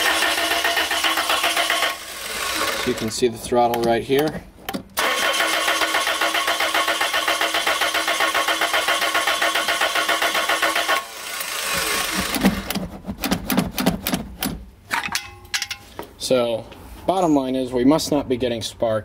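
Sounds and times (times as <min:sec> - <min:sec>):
engine cranking without firing: 0:00.0 - 0:14.6
knocks and handling noises: 0:12.2 - 0:16.2.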